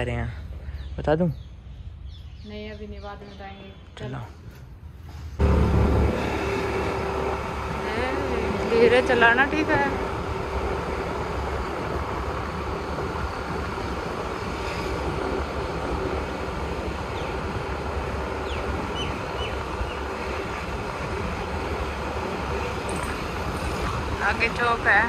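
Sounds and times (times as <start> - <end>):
rushing wind: 4.8 - 25.0
scooter road noise: 5.4 - 25.0.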